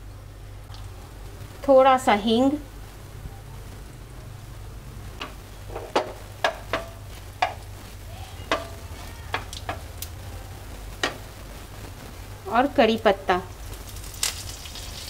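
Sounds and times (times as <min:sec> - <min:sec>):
spices sizzling in oil: 0:00.6 - 0:15.0
spatula knocking against pan: 0:05.2 - 0:07.7, 0:08.5 - 0:09.8.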